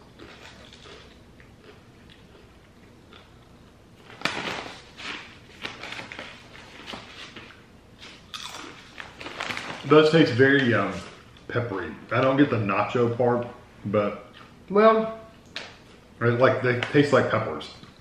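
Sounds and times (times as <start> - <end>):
crunching chips being chewed: 0.0 - 9.9
snack bag crinkling: 4.0 - 11.2.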